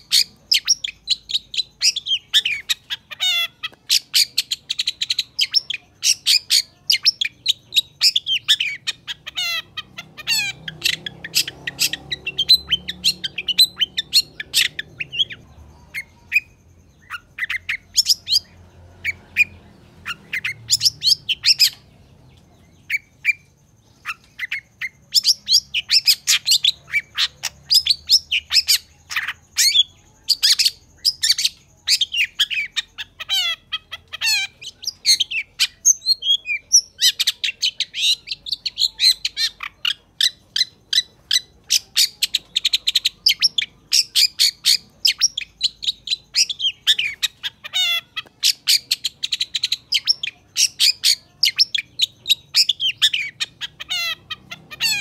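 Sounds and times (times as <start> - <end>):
bird chattering song: 0.0 - 55.0.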